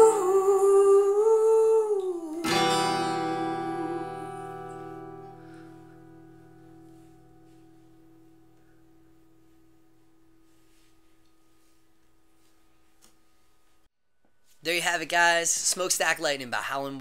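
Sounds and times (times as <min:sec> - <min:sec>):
acoustic guitar chord ringing: 0:02.4 - 0:12.4.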